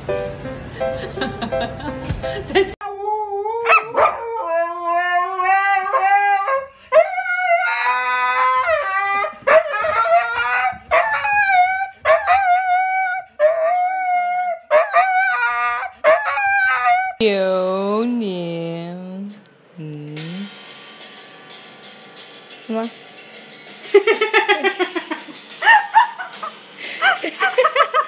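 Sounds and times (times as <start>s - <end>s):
dog howling: 2.8s - 17.2s.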